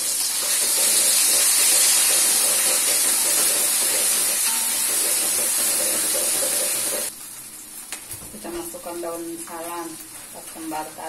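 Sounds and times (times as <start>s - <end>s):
spice paste sizzling in hot oil: 0.0s - 8.1s
metal spatula stirring in wok: 0.3s - 7.1s.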